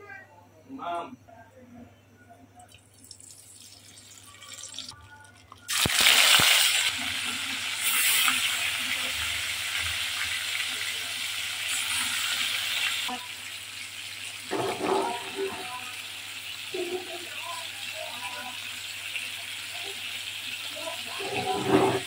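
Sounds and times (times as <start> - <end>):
fish sizzling in hot oil: 5.7 - 21.4.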